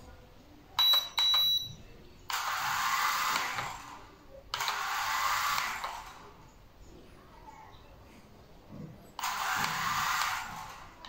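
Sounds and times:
remote control beep: 0.8 - 2.0.

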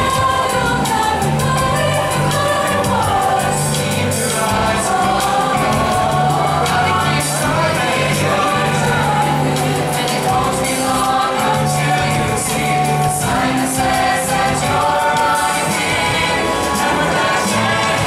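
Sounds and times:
choir singing: 0.0 - 18.0
held bass notes: 0.0 - 18.0
musical accompaniment: 0.0 - 18.0.

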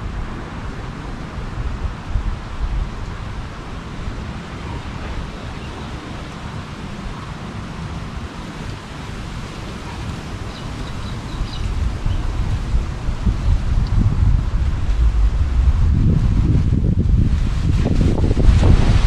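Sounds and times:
wind buffeting microphone: 0.0 - 19.0
wind rushing through trees: 0.0 - 19.0.

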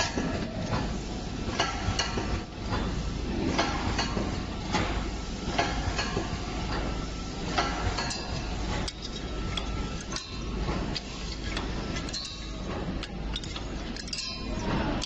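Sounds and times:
steady machine hum: 0.0 - 15.0
metallic clicks and clinks: 8.0 - 15.0.

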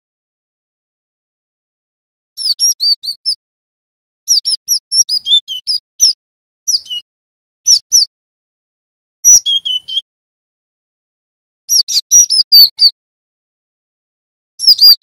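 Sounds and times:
bird chirping: 2.4 - 3.4, 4.3 - 7.1, 7.7 - 8.1, 9.2 - 10.0, 11.7 - 13.0, 14.6 - 15.0.

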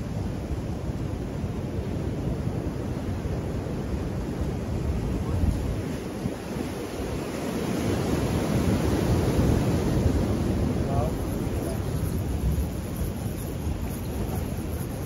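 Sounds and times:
wind rumbling on microphone: 0.0 - 15.0
sea surf breaking: 3.9 - 15.0.

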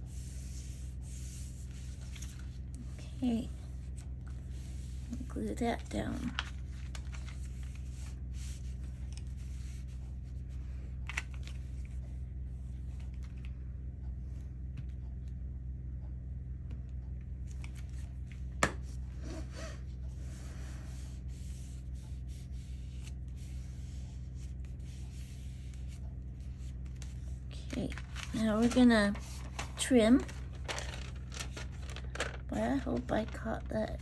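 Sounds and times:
paper rustling and rubbing: 0.0 - 12.0, 19.2 - 33.7
washing machine hum: 0.0 - 34.0.

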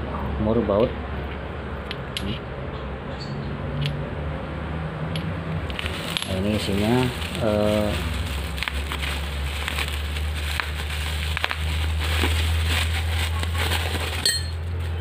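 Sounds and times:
bubble wrap crackling: 5.6 - 15.0.

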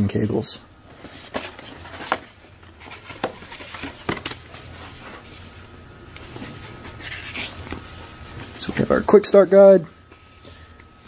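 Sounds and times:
cardboard and paper rustling: 0.9 - 5.6, 6.3 - 9.0.

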